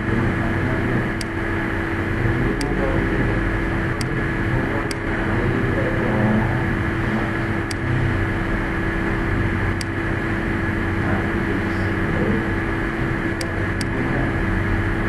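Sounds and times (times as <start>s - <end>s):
background hum and hiss: 0.0s - 15.0s
computer mouse clicks: 9.7s - 10.0s, 13.4s - 14.0s.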